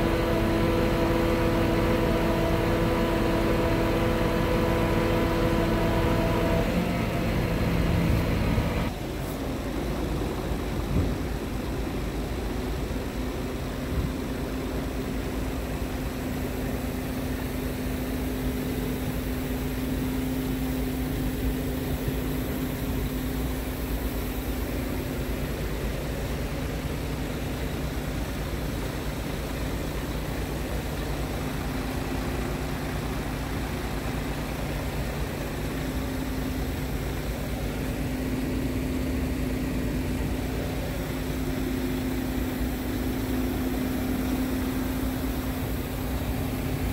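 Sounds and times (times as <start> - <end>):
truck diesel engine idling: 0.0 - 46.9.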